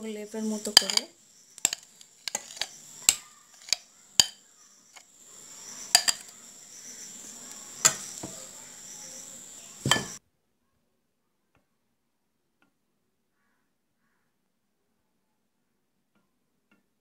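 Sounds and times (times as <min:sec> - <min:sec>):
faint steady hiss: 0:00.0 - 0:10.2
metal spoon clinking on a bowl: 0:00.7 - 0:04.5, 0:05.9 - 0:06.3.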